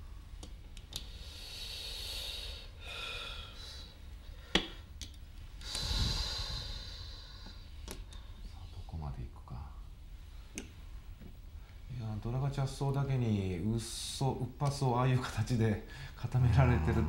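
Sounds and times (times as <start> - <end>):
soft breathing: 1.0 - 4.9, 5.6 - 9.0, 15.8 - 16.3.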